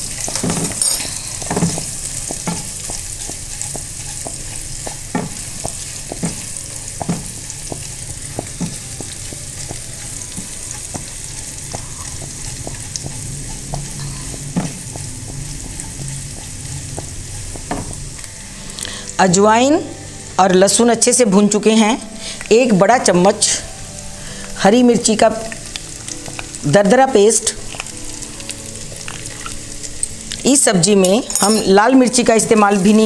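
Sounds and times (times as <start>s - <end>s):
spatula stirring: 0.0s - 17.9s
seeds sizzling in hot oil: 0.0s - 19.0s, 22.0s - 31.2s, 31.8s - 33.0s.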